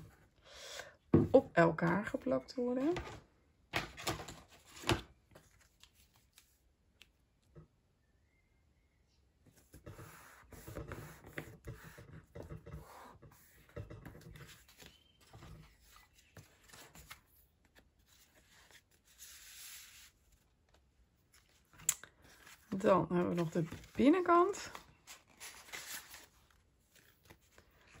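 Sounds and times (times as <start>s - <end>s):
paper sliding and rustling: 14.3s - 20.5s, 24.7s - 28.0s.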